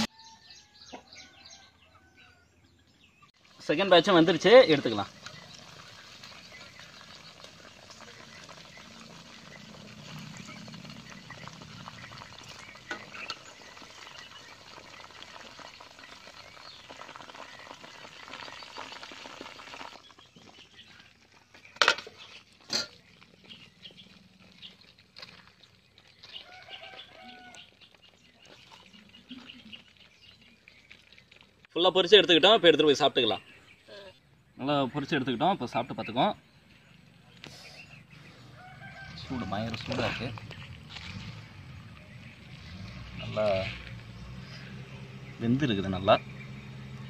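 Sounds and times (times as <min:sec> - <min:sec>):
chicken deep-frying in oil: 0:03.4 - 0:33.1, 0:38.6 - 0:47.0
faint bird chirps: 0:25.6 - 0:31.4.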